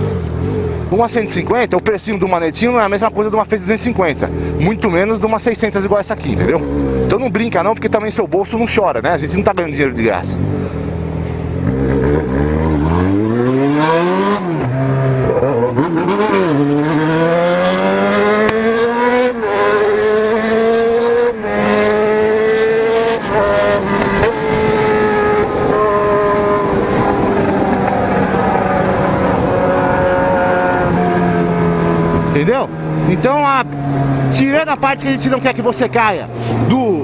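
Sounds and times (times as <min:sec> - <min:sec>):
motorcycle engine accelerating: 0:04.0 - 0:08.1, 0:09.5 - 0:37.0
wind noise: 0:23.0 - 0:33.1.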